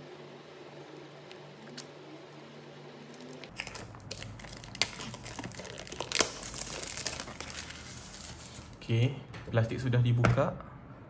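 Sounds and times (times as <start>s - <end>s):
plastic shrink wrap crinkling: 3.4s - 8.8s.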